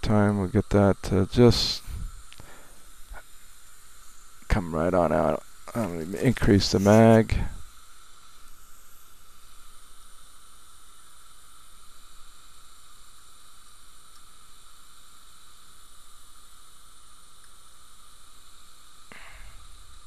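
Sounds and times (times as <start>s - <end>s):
background hiss: 0.0s - 20.0s
faint hum: 0.0s - 20.0s.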